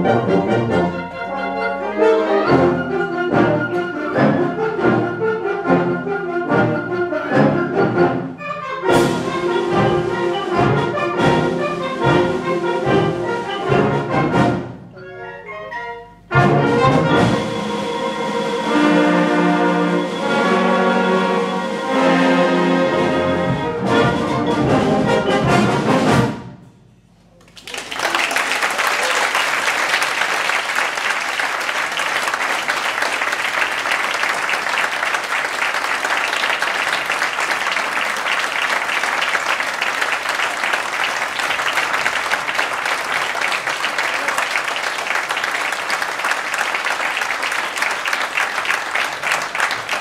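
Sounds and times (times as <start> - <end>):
audience applause: 27.4 - 50.0.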